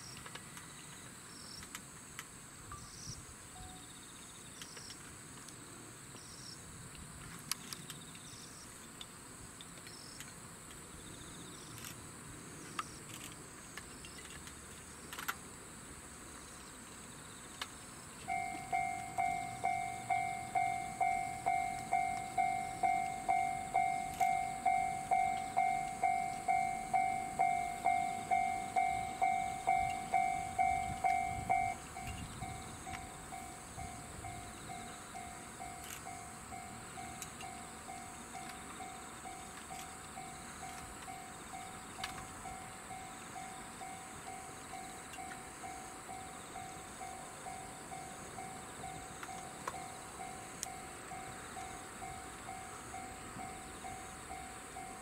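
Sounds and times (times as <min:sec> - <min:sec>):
insects chirping: 0:00.0 - 0:55.0
level-crossing warning bell: 0:03.6 - 0:04.0, 0:18.2 - 0:55.0.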